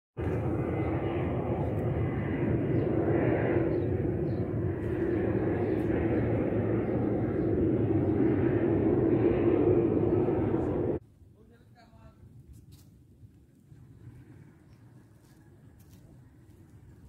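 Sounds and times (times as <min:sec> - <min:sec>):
engine-like drone: 0:00.2 - 0:11.0
low rumble: 0:00.2 - 0:11.0.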